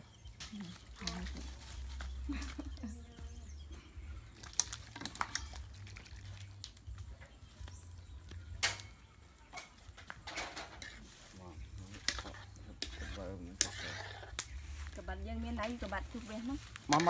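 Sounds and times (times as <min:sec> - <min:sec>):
wood fire crackling: 0:04.3 - 0:17.0.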